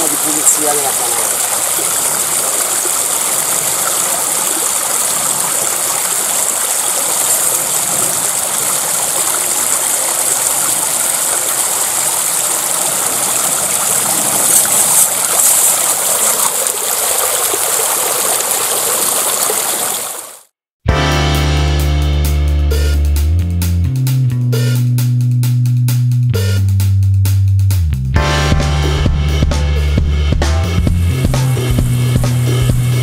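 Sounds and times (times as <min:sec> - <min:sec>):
river water rushing over stones: 0:00.0 - 0:20.5.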